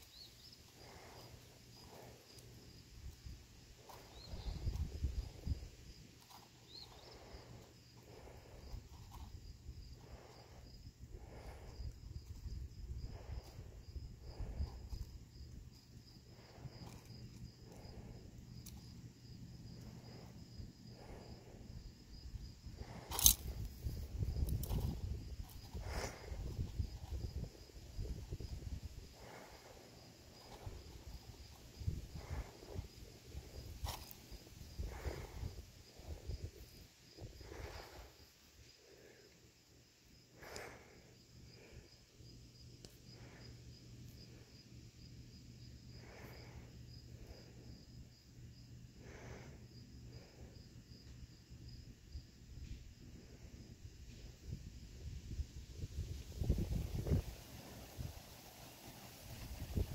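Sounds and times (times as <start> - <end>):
rustles and seed cracking in tin: 22.8 - 25.8.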